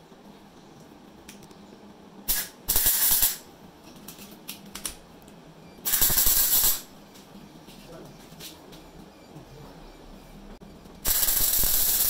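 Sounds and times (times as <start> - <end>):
arc welding crackling: 2.2 - 3.5, 5.8 - 7.0, 11.0 - 12.0.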